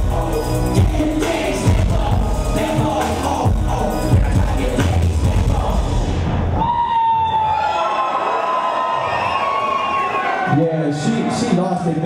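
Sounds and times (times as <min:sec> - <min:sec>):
live hip-hop music with heavy bass: 0:00.0 - 0:06.6.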